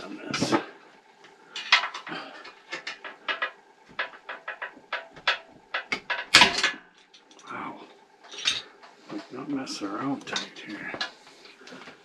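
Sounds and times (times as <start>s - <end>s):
metallic clatter: 1.5s - 7.5s, 8.2s - 9.4s.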